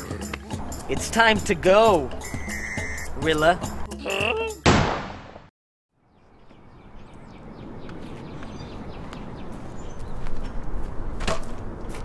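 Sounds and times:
faint bird chirps: 0:02.2 - 0:03.1
sharp knock: 0:04.7 - 0:05.3
light footsteps: 0:07.8 - 0:12.0.

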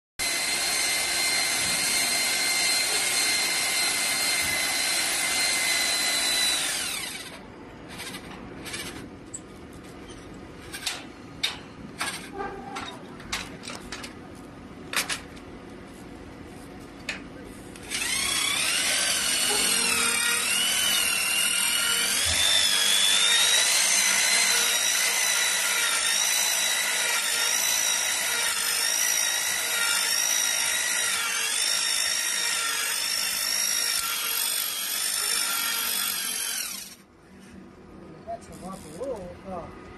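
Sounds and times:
power wrench motor whining: 0:00.2 - 0:09.1, 0:17.8 - 0:37.1.

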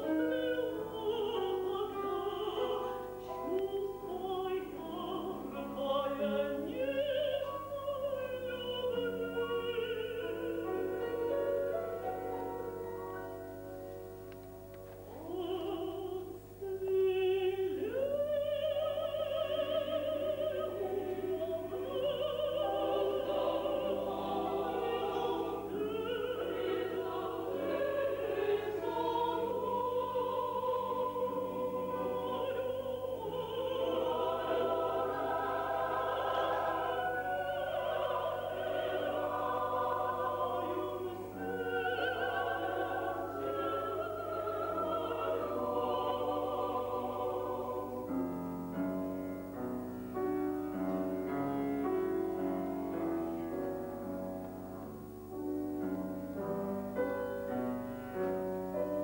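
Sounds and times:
mixed choir singing: 0:00.0 - 0:13.0, 0:15.1 - 0:48.8.

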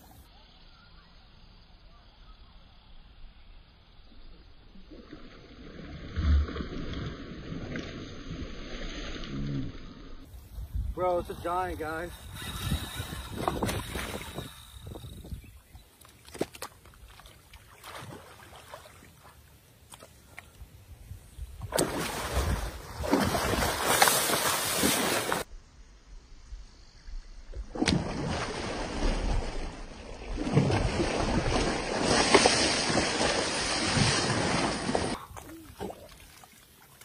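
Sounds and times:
water splashing and sloshing: 0:15.9 - 0:20.7, 0:21.5 - 0:25.5, 0:27.6 - 0:37.0.

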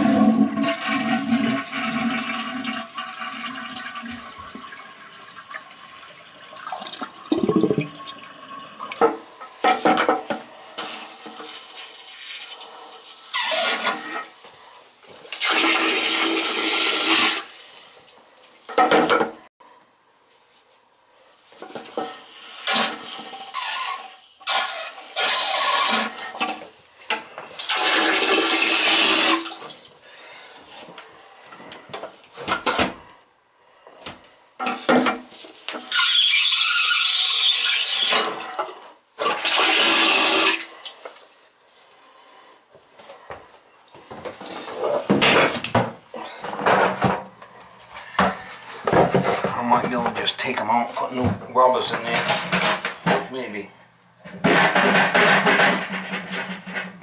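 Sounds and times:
toilet flushing: 0:00.0 - 0:14.3, 0:15.3 - 0:17.8, 0:22.1 - 0:29.9, 0:35.8 - 0:41.3.

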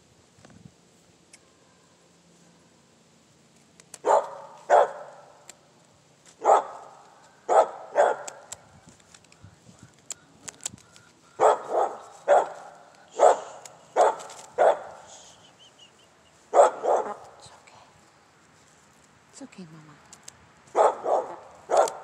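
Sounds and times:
sharp clicks: 0:03.6 - 0:04.4, 0:08.2 - 0:11.2, 0:12.9 - 0:14.6, 0:20.0 - 0:20.4, 0:21.7 - 0:22.0
animal calling: 0:10.1 - 0:17.3.

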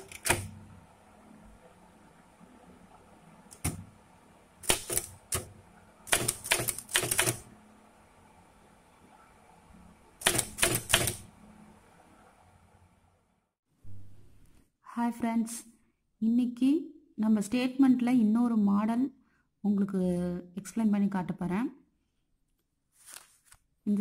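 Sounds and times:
typewriter key clicks: 0:00.0 - 0:00.5, 0:04.6 - 0:05.5, 0:06.1 - 0:07.4, 0:10.2 - 0:11.3.

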